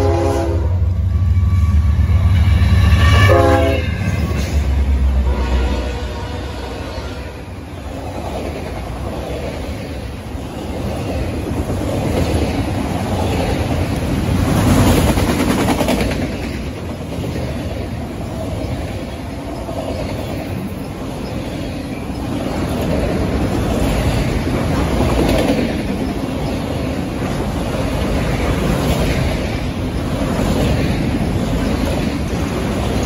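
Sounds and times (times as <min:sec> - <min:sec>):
freight train rumbling past: 0:00.0 - 0:33.0
wheels clickety-clack: 0:10.7 - 0:33.0.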